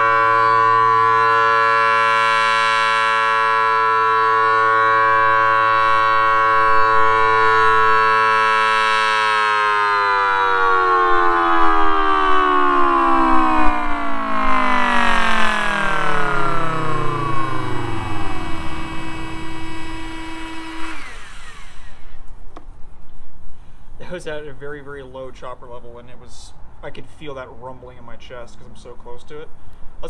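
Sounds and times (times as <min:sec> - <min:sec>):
siren chord winding down: 0:00.0 - 0:22.4.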